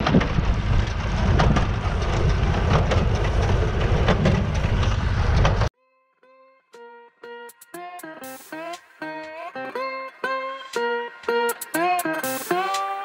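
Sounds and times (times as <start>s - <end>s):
tractor engine running: 0.0s - 5.7s.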